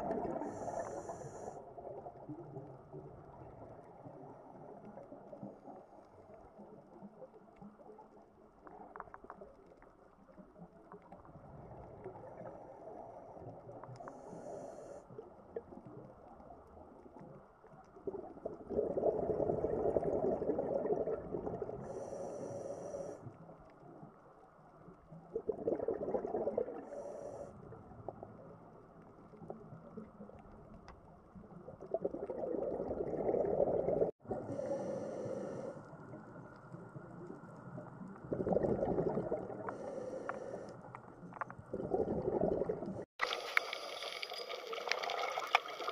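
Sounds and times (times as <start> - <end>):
exhaled bubbles rumbling underwater: 0.0 - 45.9
regulator hissing inhalations: 21.9 - 23.2.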